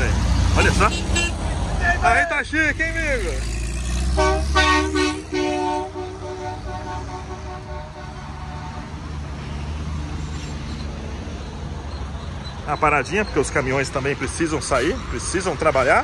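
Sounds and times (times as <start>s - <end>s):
passing traffic rumble: 0.0s - 16.0s
truck engine rumbling past: 0.0s - 16.0s
car horn tooting: 0.8s - 1.5s, 4.1s - 9.0s.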